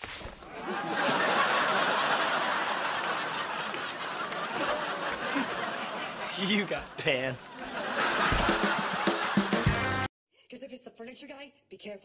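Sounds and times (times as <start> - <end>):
studio audience laughing: 0.5 - 10.1.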